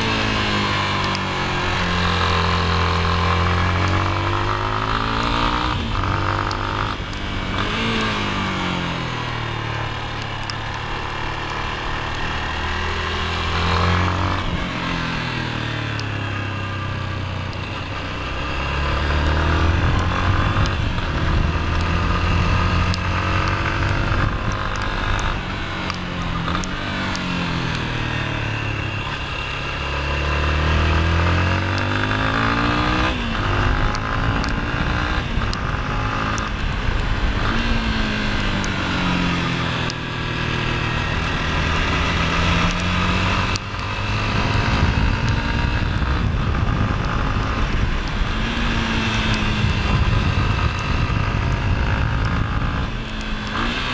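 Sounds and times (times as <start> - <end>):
motorcycle engine revving: 0.0 - 53.9
wind noise: 17.6 - 29.3, 30.6 - 39.9, 40.6 - 53.9.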